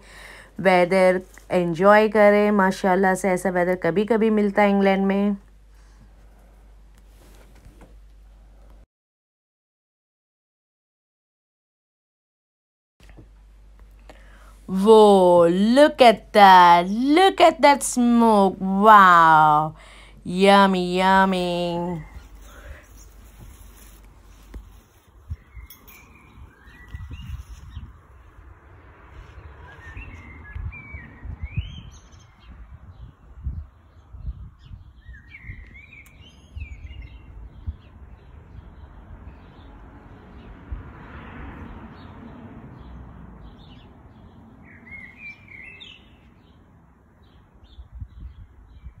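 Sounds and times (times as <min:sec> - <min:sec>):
birds chirping: 0:15.1 - 0:28.4, 0:29.3 - 0:40.5, 0:42.8 - 0:49.0.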